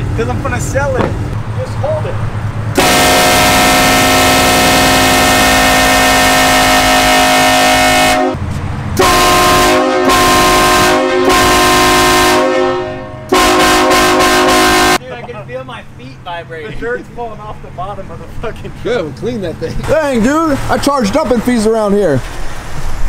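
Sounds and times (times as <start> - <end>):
air horn blasts: 2.8 - 8.4, 9.0 - 15.0.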